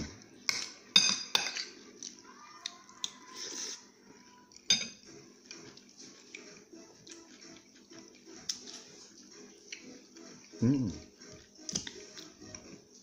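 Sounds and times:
metal spoon clinking ceramic bowl: 0.5 - 1.7, 4.7 - 5.0.

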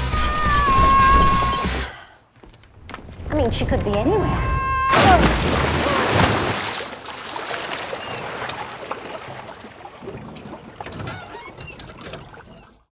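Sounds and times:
water sloshing in a pool: 4.9 - 12.9.

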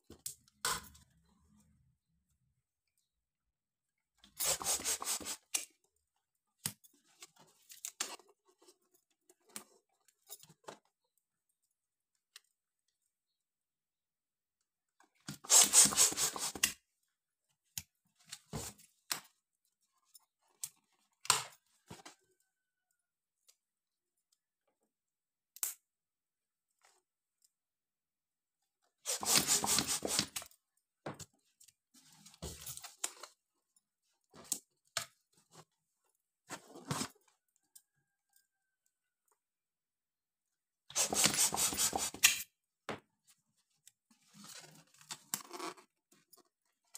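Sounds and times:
hand pump inflating balloons: 4.4 - 5.5, 15.4 - 16.6, 29.0 - 30.4, 40.9 - 42.3
rubbery balloon handling noises: 29.1 - 30.4, 40.9 - 42.2.

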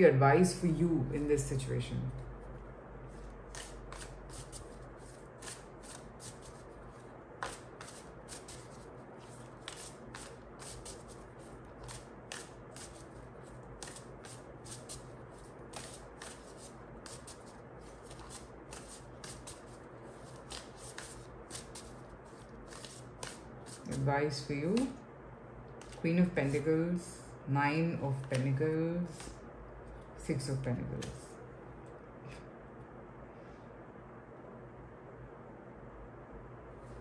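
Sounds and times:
cards being shuffled: 3.5 - 24.1, 25.8 - 26.6, 28.1 - 29.4.

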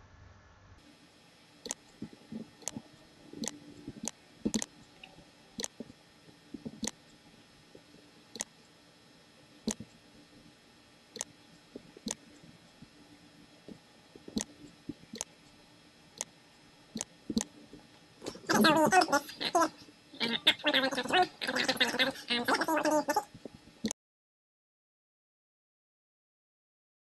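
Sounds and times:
computer mouse clicking: 3.4 - 4.7, 5.6 - 5.9.

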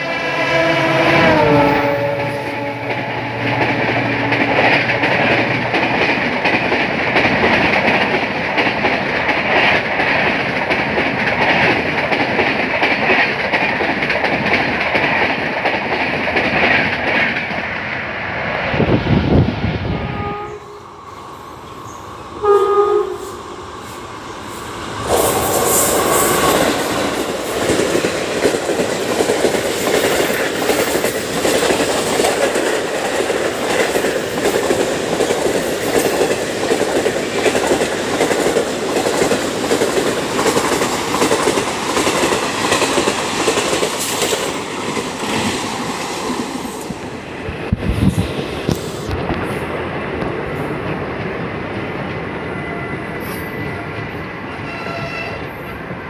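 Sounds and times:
locomotive horn: 0.0 - 5.4, 19.9 - 20.8, 22.4 - 23.4, 54.5 - 55.8
rush of passing train coaches: 0.0 - 56.0.

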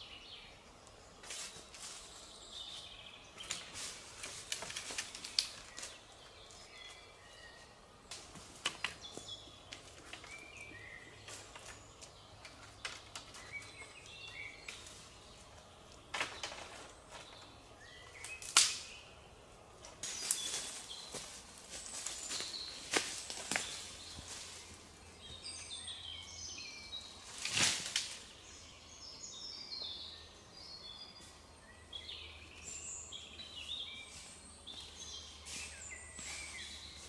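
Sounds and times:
small birds singing: 0.0 - 37.0
footsteps on dry leaves: 1.2 - 6.7, 20.0 - 25.5, 33.7 - 37.0
twigs snapping: 3.4 - 6.0, 18.2 - 19.0, 22.3 - 24.2, 27.4 - 28.3
sharp wood crack: 4.5 - 6.0, 18.2 - 19.0, 27.4 - 28.3
wooden poles knocking and rustling: 8.1 - 14.0, 15.6 - 17.6.

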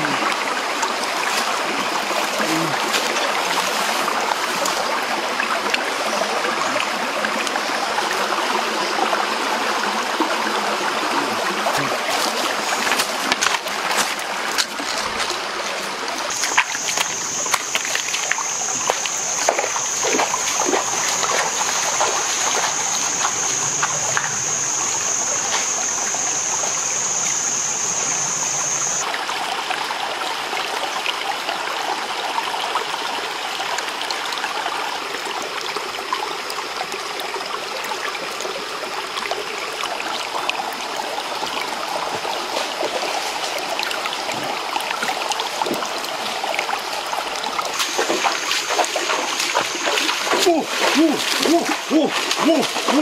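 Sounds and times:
stream water trickling: 0.0 - 53.0
splashes and knocks: 11.7 - 15.4, 16.3 - 24.3, 44.3 - 46.0, 47.7 - 53.0
high-pitched whine: 16.4 - 29.0.

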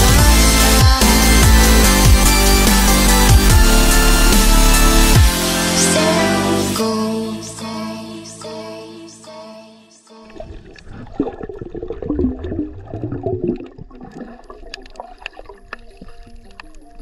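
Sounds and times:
music: 0.0 - 10.4
water gurgling and sloshing: 10.2 - 17.0.

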